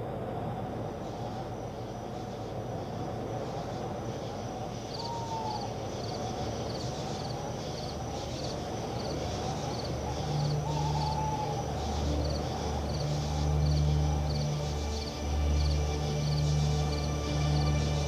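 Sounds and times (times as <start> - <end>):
low rumbling noise: 0.0 - 18.0
low steady hum: 0.0 - 18.0
high insect-like chirp: 0.9 - 18.0.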